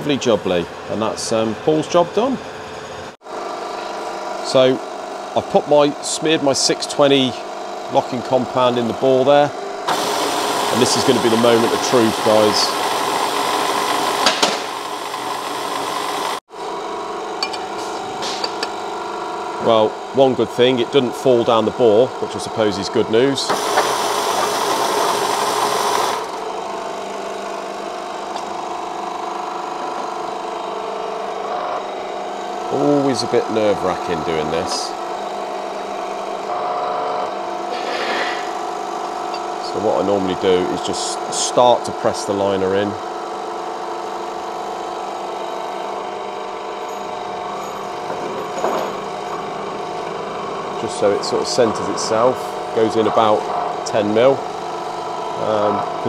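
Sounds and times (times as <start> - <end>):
machine motor humming: 0.0 - 56.0.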